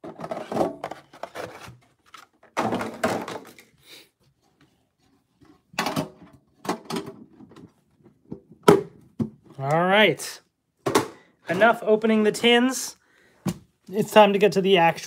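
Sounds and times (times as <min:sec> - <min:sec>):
hollow thunks of metal tins: 0:05.7 - 0:09.5.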